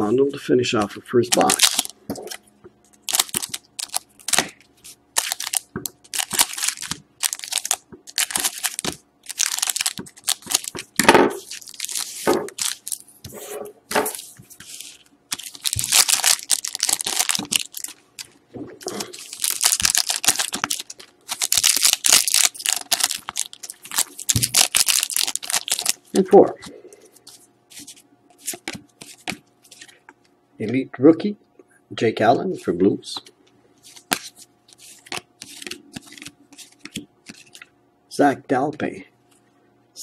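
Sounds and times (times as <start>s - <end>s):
foil wrappers crinkling and tearing: 1.2s - 13.1s, 14.1s - 26.2s, 27.2s - 30.0s, 33.8s - 37.7s.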